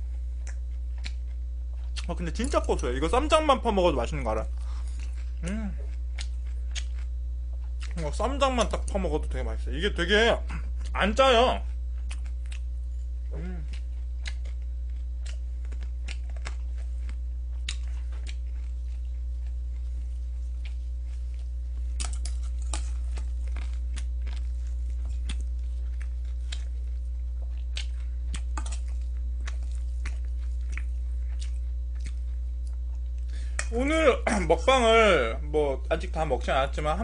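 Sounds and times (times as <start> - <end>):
low electrical hum: 0.0 - 37.0
chewing: 0.4 - 2.8, 4.5 - 8.0, 11.6 - 12.8, 13.6 - 33.7.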